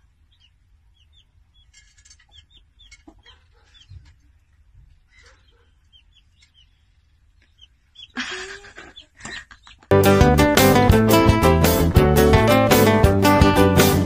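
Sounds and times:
chick peeping: 0.0s - 9.9s.

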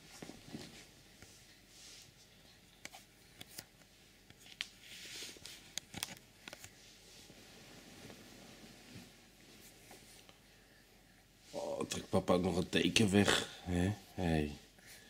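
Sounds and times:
blanket rustling: 4.8s - 10.4s.

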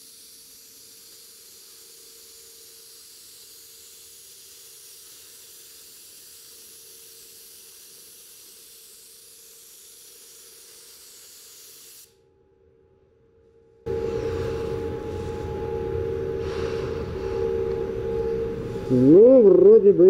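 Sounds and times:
spray gun air hiss: 0.0s - 12.2s.

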